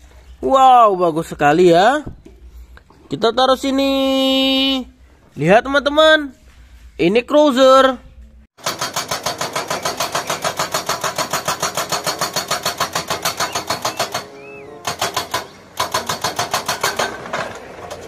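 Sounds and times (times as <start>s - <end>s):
hydraulic rock breaker hammering stone: 8.6s - 18.0s.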